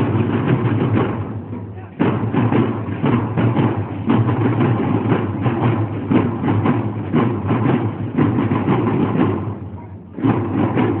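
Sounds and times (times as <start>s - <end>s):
snare and bass drums: 0.0s - 11.0s.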